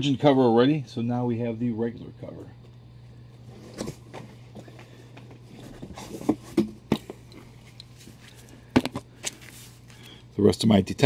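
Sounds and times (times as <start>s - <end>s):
steady low hum: 0.0s - 11.0s
paper shuffling: 7.6s - 10.2s.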